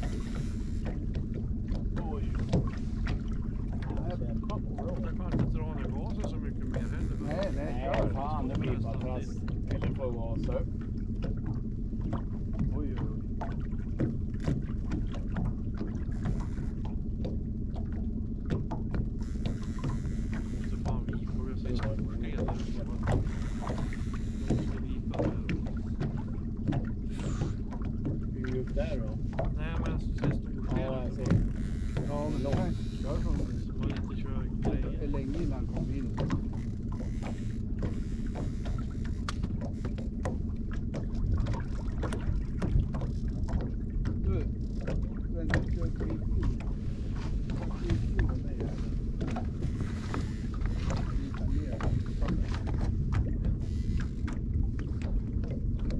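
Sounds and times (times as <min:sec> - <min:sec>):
outboard motor running: 0:00.0 - 0:55.9
water slapping against hull: 0:00.0 - 0:55.9.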